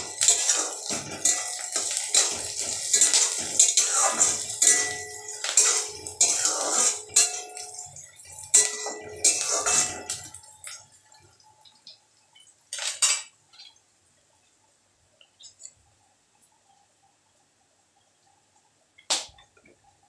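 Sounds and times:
metal spatula scraping steel pan: 0.0 - 10.4.

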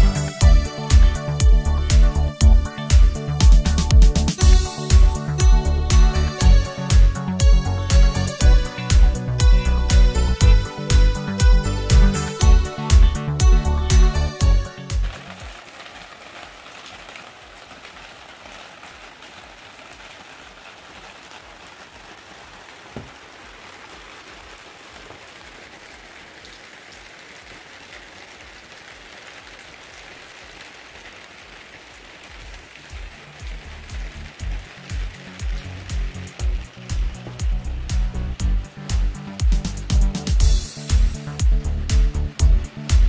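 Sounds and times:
background music with strong beat: 0.0 - 15.2, 32.9 - 43.0
rain patter: 0.0 - 43.0.

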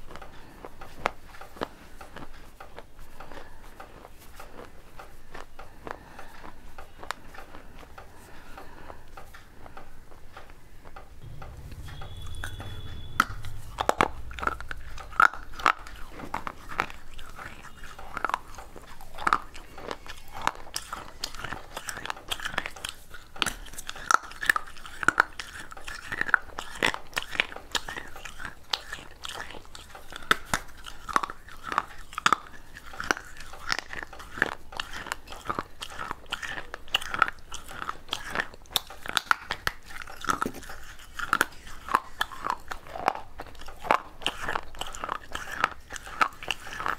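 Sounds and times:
chewing crunchy clay: 0.0 - 9.9, 11.5 - 46.9.

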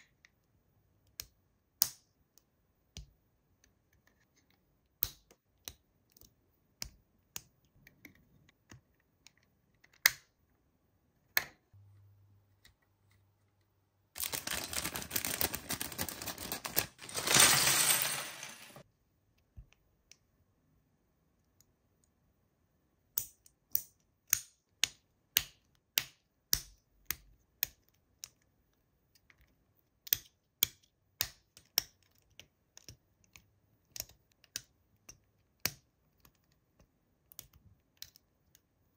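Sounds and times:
packaging handling: 14.2 - 18.8.

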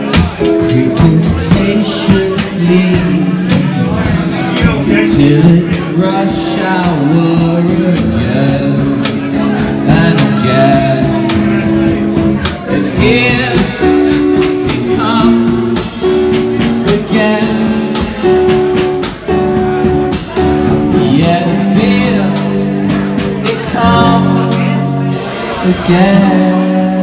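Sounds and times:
guitar chords: 0.0 - 27.0
man singing: 0.0 - 27.0
percussive beat: 6.8 - 26.4.

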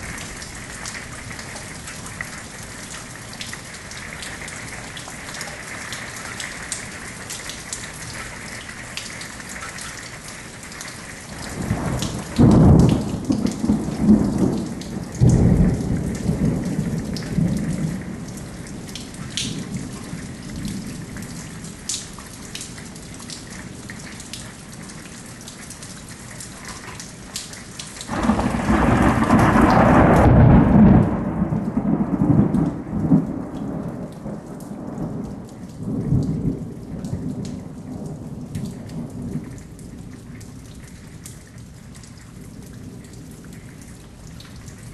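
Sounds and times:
raindrops ticking close by: 0.0 - 44.9
steady rain falling: 0.0 - 44.9
rolling thunder: 11.4 - 20.9, 28.1 - 39.6.

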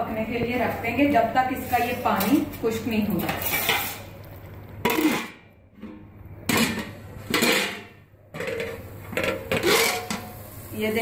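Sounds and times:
metal lid clanking on pot: 6.5 - 10.3.

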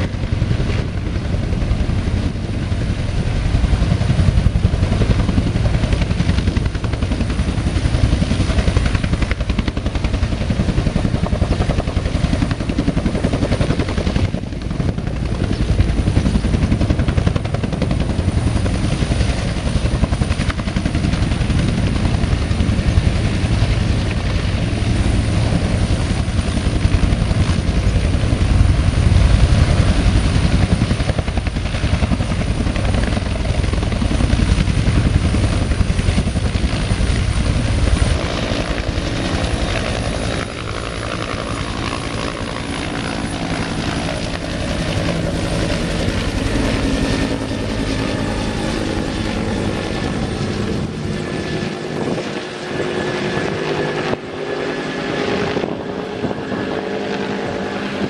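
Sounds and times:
helicopter rotor beating: 0.0 - 58.0.

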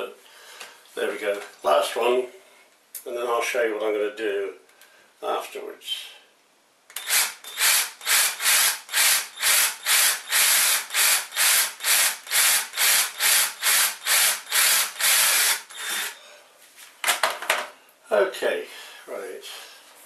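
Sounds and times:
cordless drill boring into wood: 6.9 - 16.2.

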